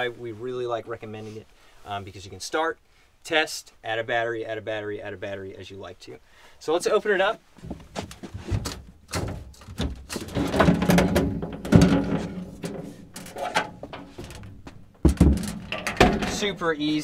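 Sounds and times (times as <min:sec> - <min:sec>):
heavy thump: 0:07.6 - 0:16.6
panel knocking and scraping on frame: 0:07.7 - 0:16.5.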